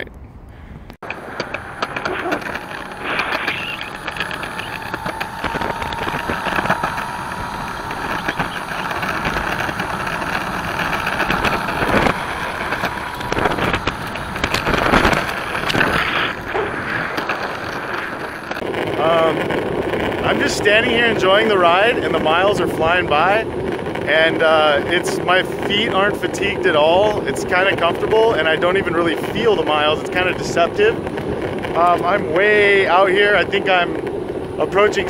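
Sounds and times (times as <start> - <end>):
wheels rumbling on concrete: 0.0 - 35.0
sharp clacks: 1.0 - 20.3
electric motor whine: 1.0 - 24.4.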